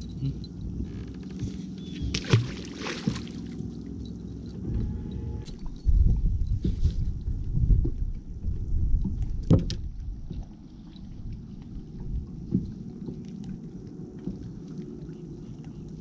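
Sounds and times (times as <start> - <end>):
wind buffeting microphone: 4.6 - 14.4.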